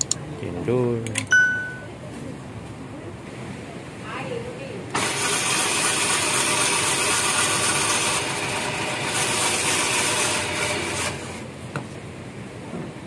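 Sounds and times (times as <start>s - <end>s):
ice shaving machine rasping: 5.0s - 11.4s.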